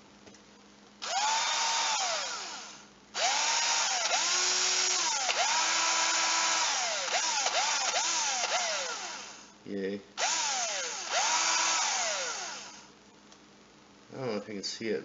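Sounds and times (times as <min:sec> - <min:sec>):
cordless drill motor whine: 0:01.0 - 0:09.5, 0:10.2 - 0:12.9.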